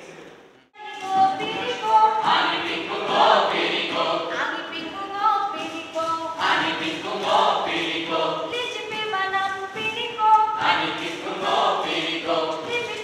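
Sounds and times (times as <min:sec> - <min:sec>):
group chanting a song: 0:01.2 - 0:04.8, 0:06.2 - 0:08.6, 0:10.6 - 0:13.0.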